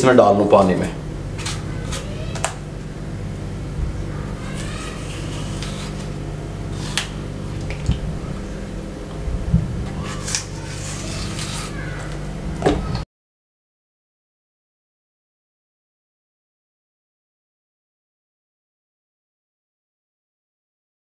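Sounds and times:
steady low hum: 0:00.0 - 0:13.0
knife peeling an apple: 0:01.3 - 0:02.7, 0:04.1 - 0:08.1, 0:09.8 - 0:12.3
light scrapes and clicks: 0:04.5 - 0:08.0, 0:10.0 - 0:12.2.

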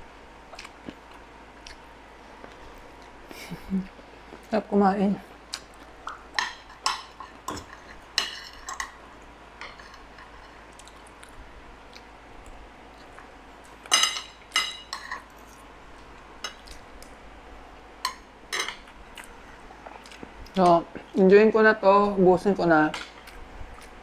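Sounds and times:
cutlery clinking on a plate: 0:13.9 - 0:15.3.

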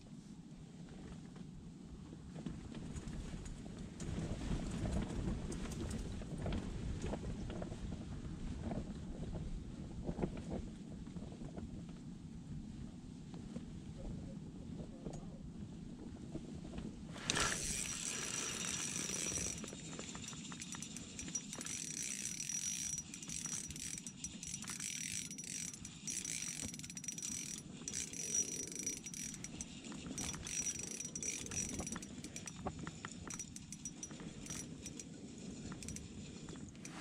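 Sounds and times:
fishing reel clicking and whirring: 0:17.2 - 0:37.0.

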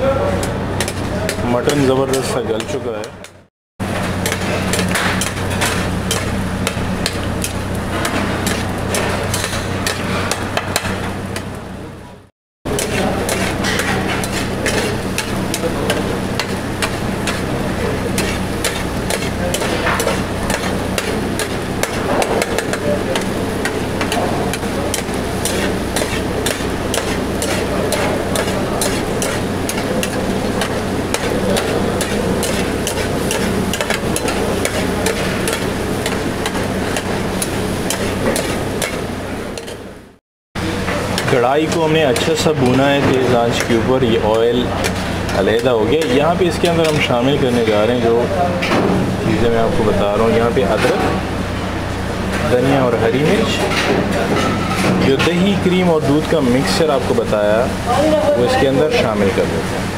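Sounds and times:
meat boiling and frying in pan: 0:00.3 - 0:59.9
metal spatula scraping pan: 0:04.2 - 0:10.4, 0:12.7 - 0:39.0.

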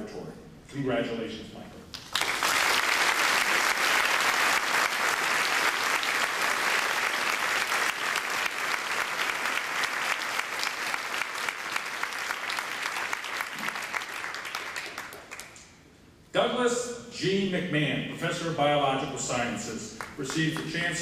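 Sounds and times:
audience applauding: 0:01.9 - 0:15.7, 0:20.0 - 0:21.0.

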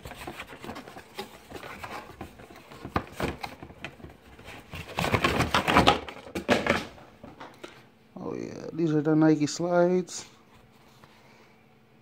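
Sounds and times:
cardboard box being handled: 0:00.0 - 0:05.9
packaging clicks and rustling: 0:00.0 - 0:06.9.

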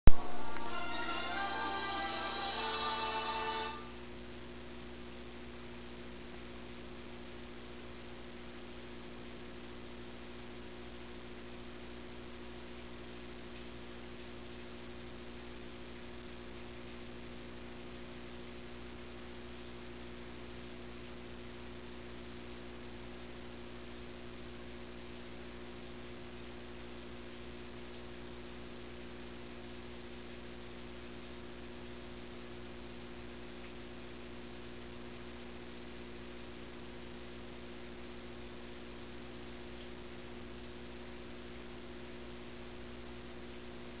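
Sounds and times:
steady tonal hum: 0:00.1 - 0:04.1.

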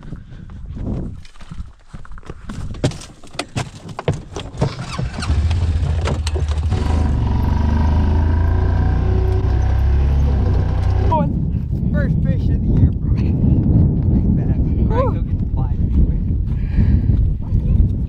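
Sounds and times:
footsteps and knocks: 0:00.4 - 0:04.9
vehicle engine starting and running: 0:04.6 - 0:11.2.

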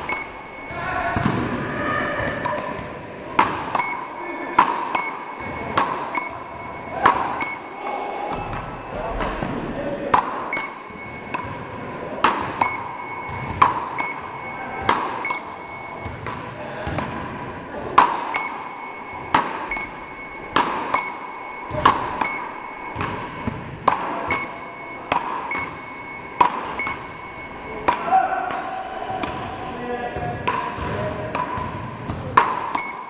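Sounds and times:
short high beep: 0:00.0 - 0:01.2, 0:03.8 - 0:09.1, 0:10.5 - 0:11.7, 0:12.4 - 0:16.2, 0:18.2 - 0:28.3, 0:32.8 - 0:33.0
paddle hitting ball: 0:14.8 - 0:17.2, 0:30.4 - 0:32.8.

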